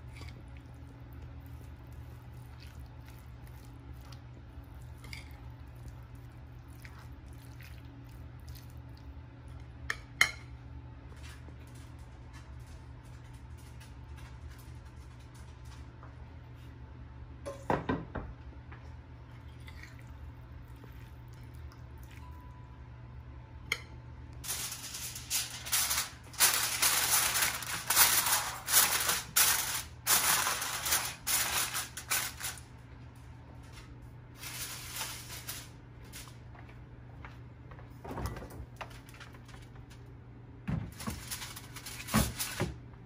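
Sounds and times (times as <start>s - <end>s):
seasoning shaker rattling: 24.4s - 32.6s, 34.4s - 36.4s.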